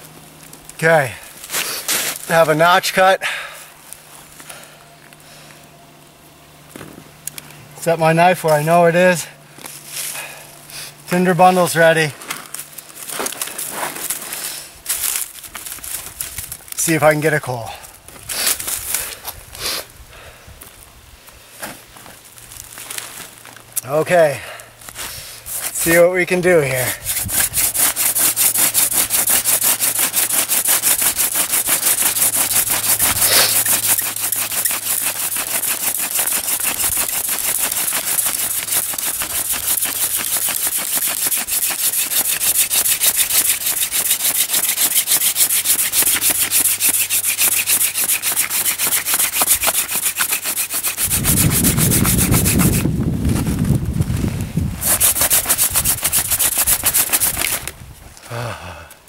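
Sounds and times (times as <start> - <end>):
wooden drill rasping friction: 25.5 - 52.9, 54.8 - 57.7.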